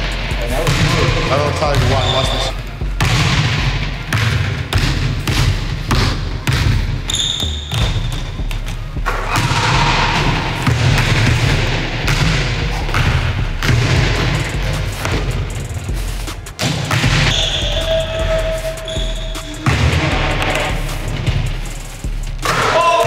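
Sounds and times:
basketball bouncing: 0.6 - 21.6
high squeak: 17.3 - 19.6.

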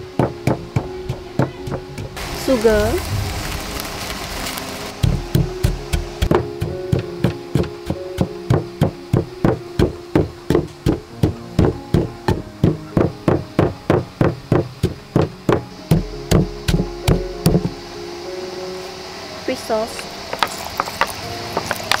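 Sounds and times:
pestle pounding in a mortar: 0.0 - 2.2, 5.0 - 17.8.

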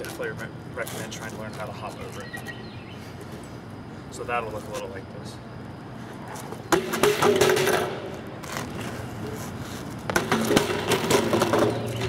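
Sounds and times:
bike clattering on concrete: 6.4 - 9.0, 9.7 - 12.0.

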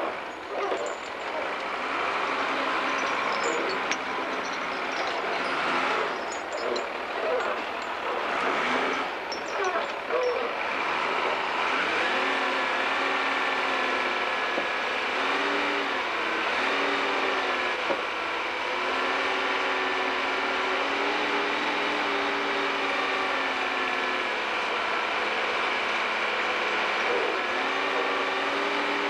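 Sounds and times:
diesel engine running: 0.0 - 29.0.

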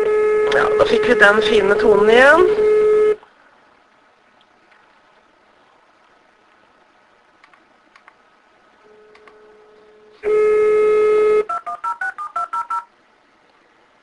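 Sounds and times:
faint clicks: 7.4 - 8.2
telephone dial tone: 11.4 - 12.9
touch-tone keypad beeps: 11.5 - 12.9.

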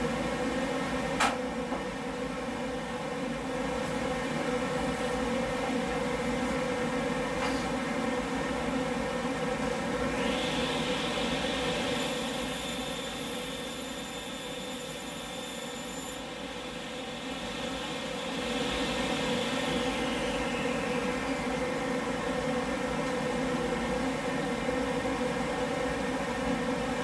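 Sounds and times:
table saw and dust collector drone: 9.0 - 27.0
high saw whine: 10.1 - 21.6
faint whine falling in pitch: 18.2 - 21.7.

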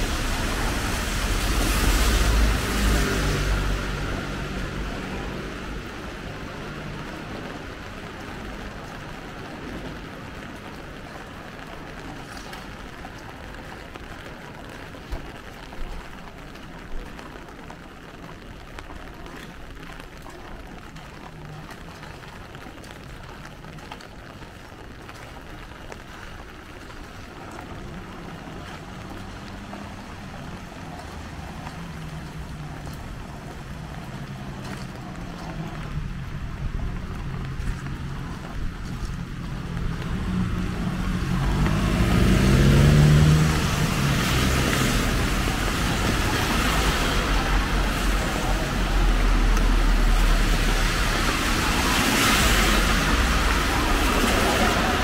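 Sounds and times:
vehicle engine approaching: 0.0 - 11.3, 26.8 - 55.0
light rain hiss: 0.0 - 55.0
wet traffic: 0.0 - 55.0.

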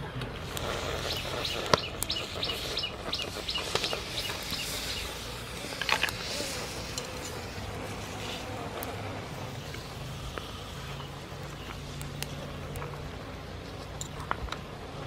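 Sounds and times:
sharp pops: 0.2 - 9.0
small birds chirping: 0.4 - 14.3.

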